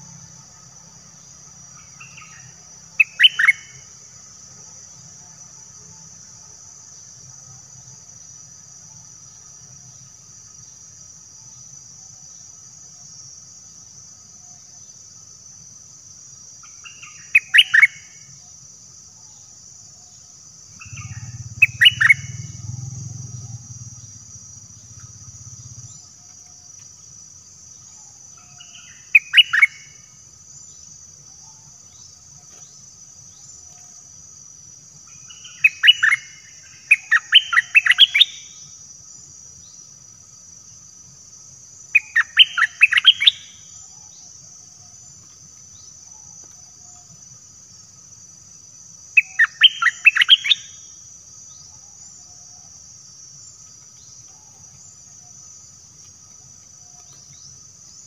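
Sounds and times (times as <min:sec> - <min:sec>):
insects droning: 0:00.0 - 0:58.0
bird singing bubbly phrases: 0:20.8 - 0:22.5.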